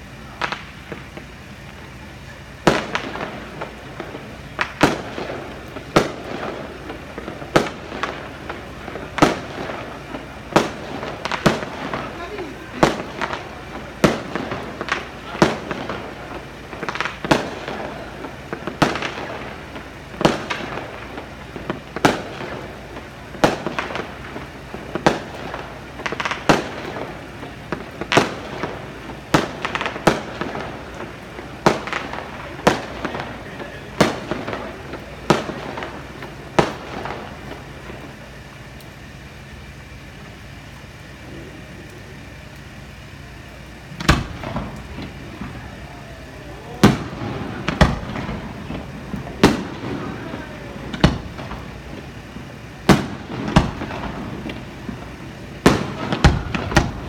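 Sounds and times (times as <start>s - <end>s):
fireworks bangs: 0.0s - 57.0s.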